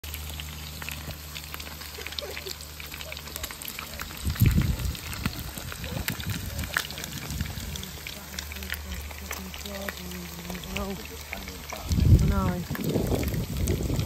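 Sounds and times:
sausages sizzling in a frying pan: 0.0 - 14.0
low rumble: 4.0 - 14.0.

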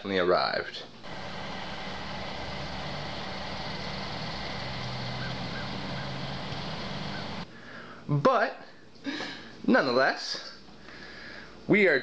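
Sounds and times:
distant traffic rumble: 1.0 - 7.5
low hum: 1.0 - 7.5.

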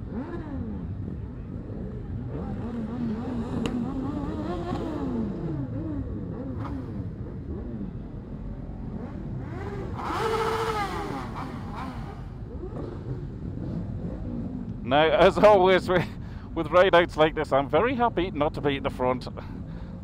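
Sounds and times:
motorcycle revving loudly: 0.0 - 8.1, 8.9 - 15.6
motorcycle engines running: 0.0 - 20.0.

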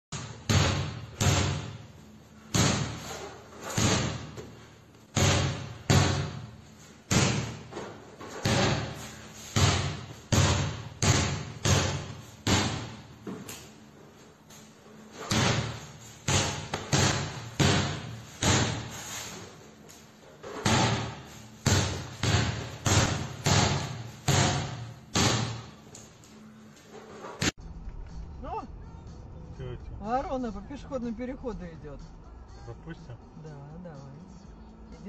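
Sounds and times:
basketball bouncing on tiled floor: 7.1 - 7.8, 8.4 - 13.4, 15.3 - 18.9, 20.6 - 25.8.

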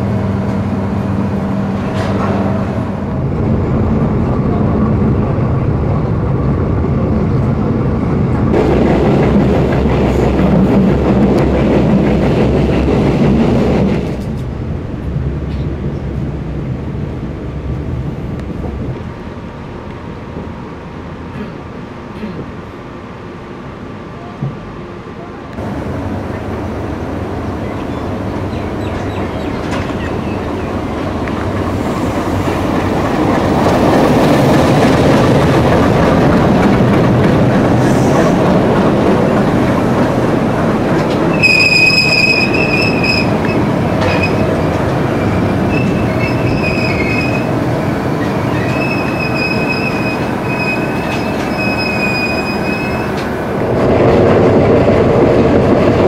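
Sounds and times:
train wheels rumbling on rail: 0.0 - 56.0
train wheels squealing: 41.3 - 44.5, 45.2 - 47.5, 48.5 - 53.2.

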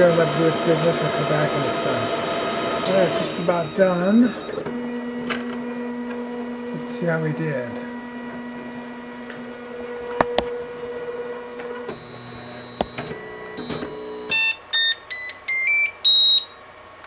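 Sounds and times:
printer machine hum: 0.0 - 14.7
electronic beeps tune: 14.3 - 16.6.

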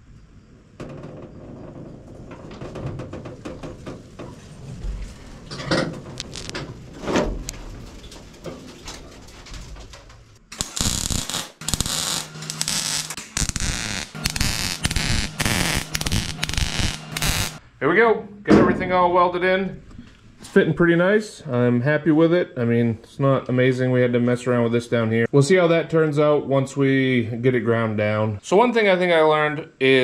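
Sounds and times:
low workshop sounds: 0.0 - 24.5
wire-feed welder welding: 6.2 - 6.6, 10.5 - 17.6.

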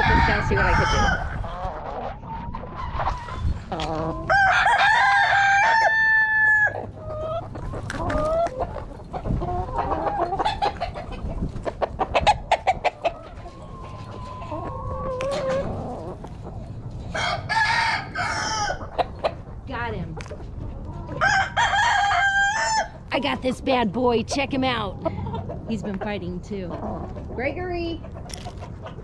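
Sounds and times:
hens clucking: 0.0 - 29.0
rooster crowing: 4.3 - 6.8, 17.1 - 18.8, 21.2 - 23.0.

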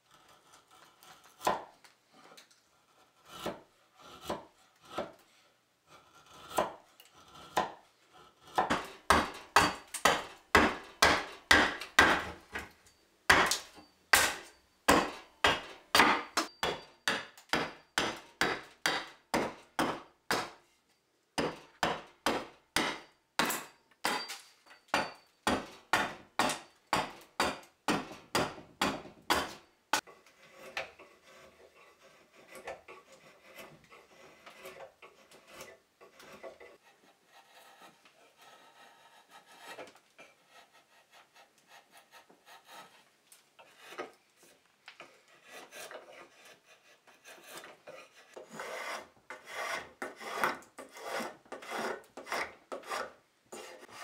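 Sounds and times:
mallet knocking on chisel: 8.6 - 12.7.

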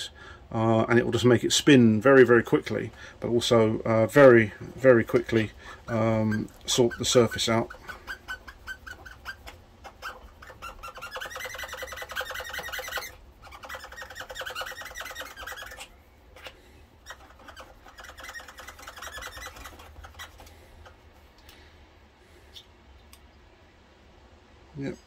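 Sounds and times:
rotary tool brush buzzing chatter: 4.2 - 20.6.

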